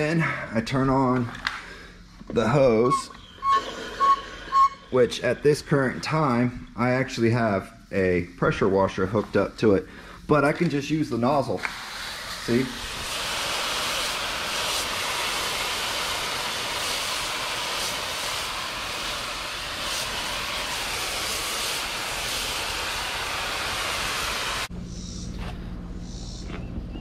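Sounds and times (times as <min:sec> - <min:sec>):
hose water spraying on tyres: 0:11.6 - 0:24.7.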